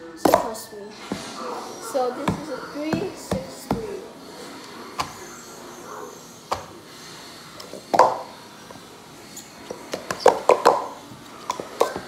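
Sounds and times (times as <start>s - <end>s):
plastic cups clacking: 7.6s - 8.8s, 9.4s - 12.0s.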